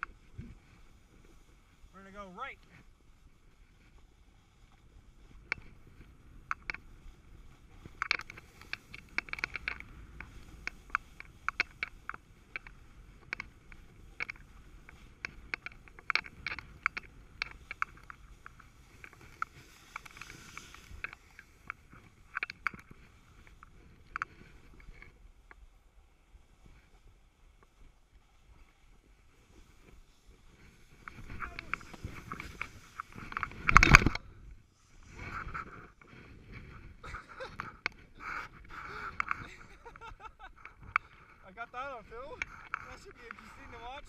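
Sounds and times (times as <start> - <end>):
snowboard rumbling over snow: 4.9 - 22.3, 22.9 - 43.9
sharp clicks and ticks: 6.4 - 6.8, 7.9 - 25.1, 31.0 - 34.2, 38.6 - 44.0.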